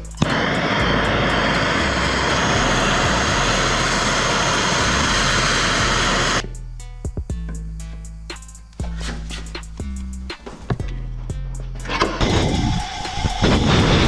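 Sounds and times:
gas torch hissing: 0.0s - 6.4s, 11.9s - 14.0s.

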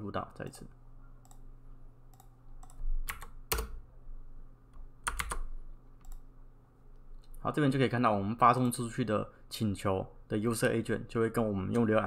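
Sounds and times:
mouse clicks: 1.2s - 1.4s
keyboard key presses: 2.1s - 3.8s, 5.0s - 6.2s.

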